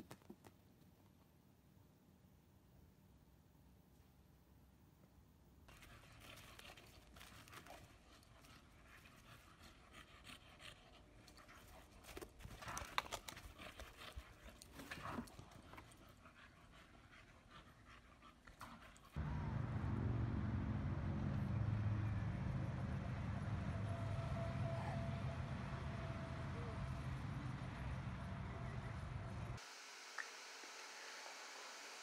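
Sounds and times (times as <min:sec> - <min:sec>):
dog panting: 0:05.7 - 0:19.2.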